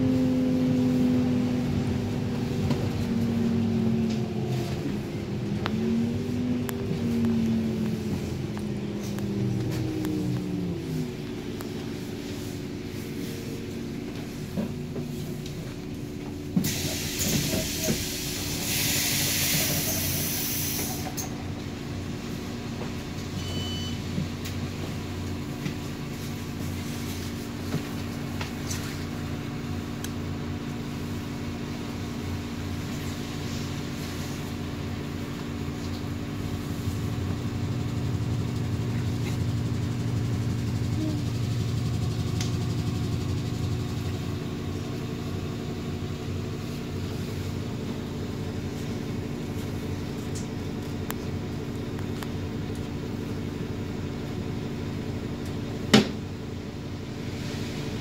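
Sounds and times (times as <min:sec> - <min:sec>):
bus engine hum: 0:00.0 - 0:58.0
compressed air hiss: 0:16.6 - 0:21.0.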